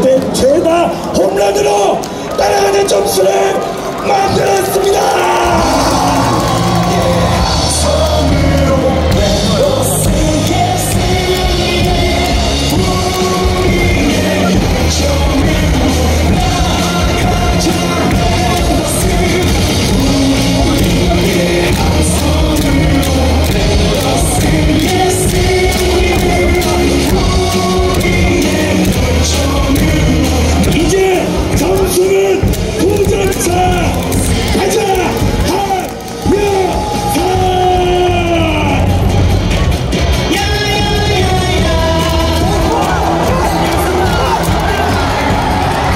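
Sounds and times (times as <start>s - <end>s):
cheer song over loudspeakers: 0.0s - 45.9s
person singing into a microphone: 2.3s - 39.0s.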